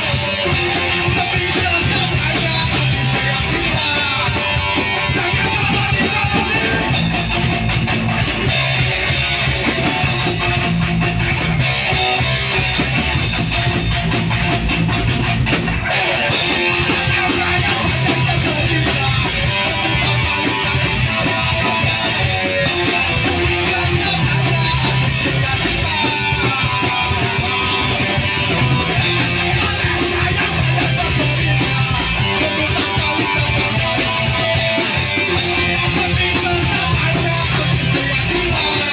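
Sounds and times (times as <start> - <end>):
person singing: 0.0 - 7.6, 15.8 - 38.9
bass guitar: 0.0 - 38.9
distorted electric guitar: 0.0 - 38.9
drum kit: 0.0 - 38.9.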